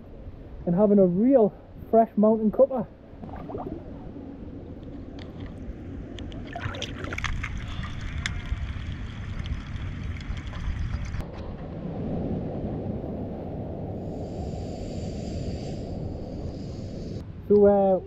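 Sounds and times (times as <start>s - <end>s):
water sloshing and trickling: 3.2s - 11.2s
stream flowing: 4.9s - 11.2s
drips and small clicks: 5.1s - 11.2s.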